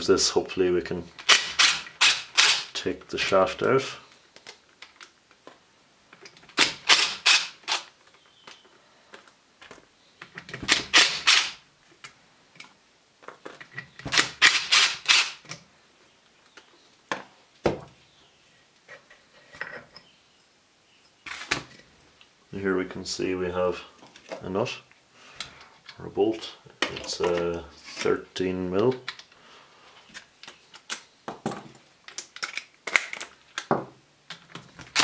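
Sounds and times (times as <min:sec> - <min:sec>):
impact driver hammering bolts: 0:10.6 - 0:11.6.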